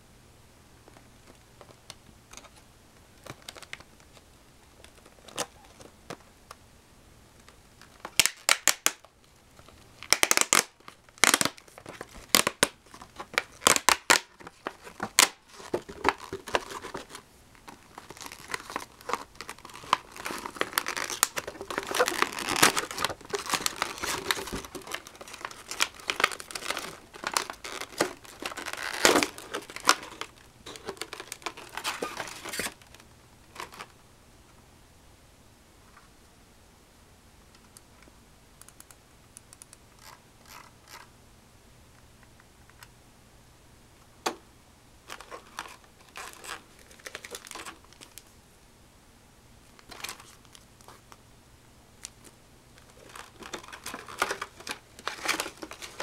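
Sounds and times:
plastic crinkling and rustling: 0.9s - 6.3s, 7.4s - 34.0s, 45.0s - 48.3s, 49.7s - 51.2s, 52.0s - 56.0s
plastic snapping and cracking: 7.4s - 9.1s, 10.0s - 33.9s, 52.0s - 56.0s.

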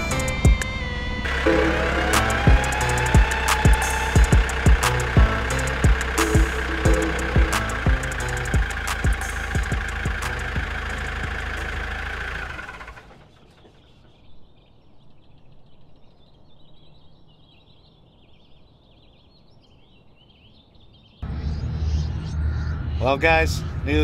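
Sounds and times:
engine rumbling: 0.0s - 15.0s, 21.2s - 24.0s
faint outdoor air: 0.0s - 24.0s
bird chirps: 13.1s - 24.0s.

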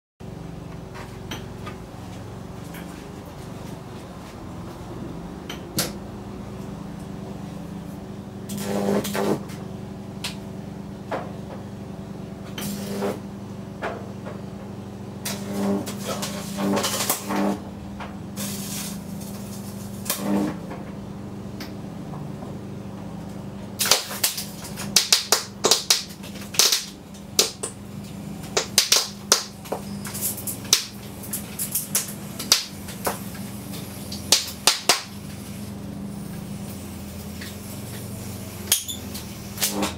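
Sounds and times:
electrical hum: 0.2s - 39.9s
high-voltage arcing snaps and crackles: 8.5s - 9.4s, 15.2s - 17.6s, 18.4s - 20.6s, 23.8s - 35.7s, 36.3s - 39.9s.

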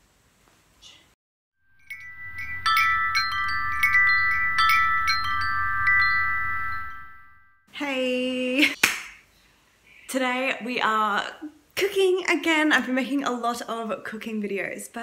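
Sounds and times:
chiming jingle: 1.6s - 7.6s.

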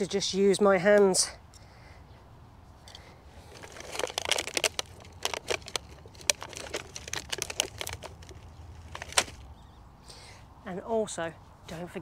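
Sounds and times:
plastic tray crinkling: 3.4s - 9.5s.

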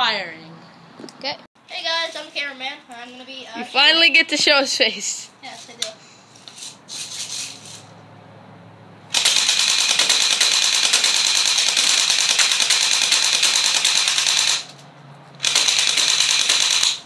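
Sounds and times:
airsoft gun automatic fire: 9.1s - 14.8s, 15.4s - 17.0s.

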